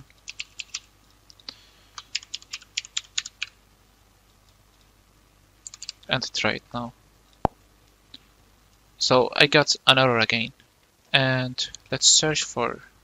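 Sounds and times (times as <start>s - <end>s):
computer keyboard typing: 0.2s - 0.9s, 2.0s - 3.6s, 5.6s - 6.1s.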